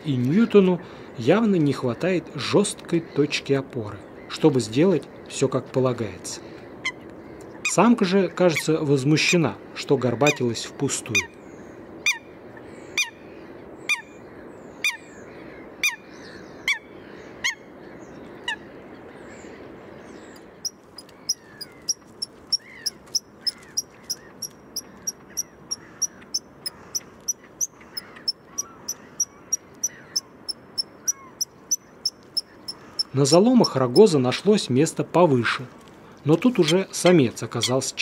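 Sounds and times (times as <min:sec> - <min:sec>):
high sharp bird notes: 0:20.6 - 0:34.2.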